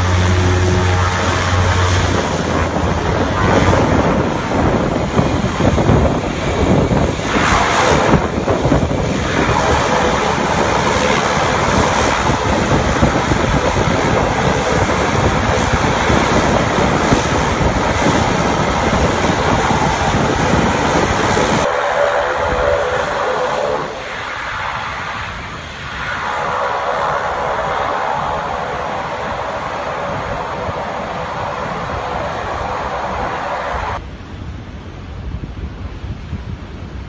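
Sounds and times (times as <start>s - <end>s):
floatplane engine and propeller: 0.0s - 37.0s
wind buffeting microphone: 0.0s - 37.0s.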